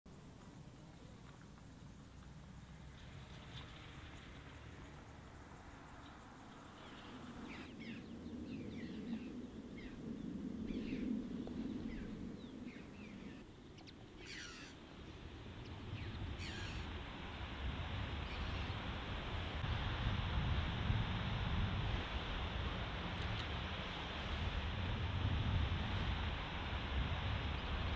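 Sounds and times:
birds chirping: 0.4 - 17.2, 18.0 - 19.1
steady rushing noise: 2.3 - 27.9
harsh bird calls: 11.9 - 17.0.

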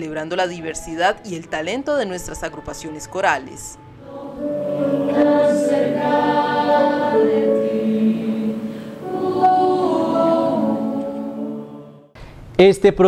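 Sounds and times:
choir singing held chords: 3.8 - 12.2.

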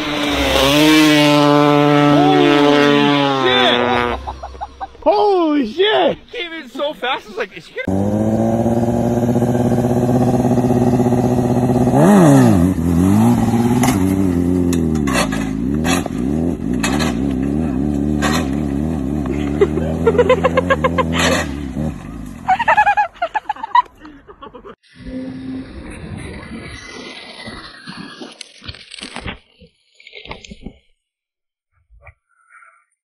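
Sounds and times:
motorcycle engine revving: 0.0 - 4.4, 7.8 - 22.5.

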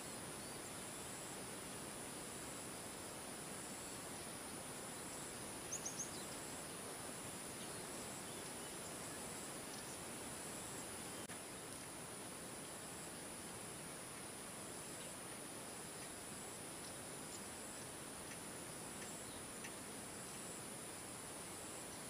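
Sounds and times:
insects droning: 0.0 - 22.0
bird chirping: 5.1 - 6.6, 7.6 - 10.0.

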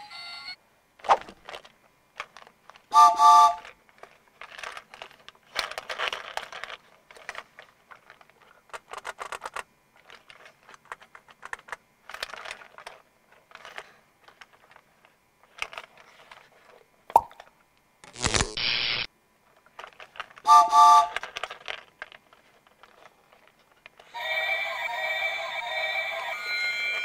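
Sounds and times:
plastic toy clicking and rattling: 3.5 - 16.4, 19.6 - 24.2.

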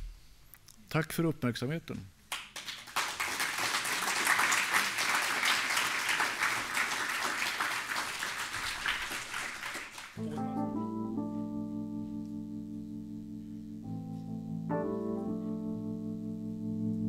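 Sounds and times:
audience applauding: 2.3 - 10.2
music with held notes: 10.2 - 17.0.

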